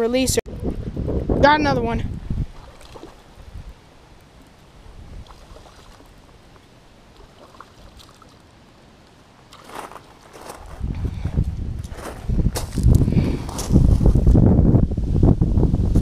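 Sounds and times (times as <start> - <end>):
wind rumbling on microphone: 0.0 - 8.4, 9.6 - 16.0
water splashing: 2.3 - 10.5.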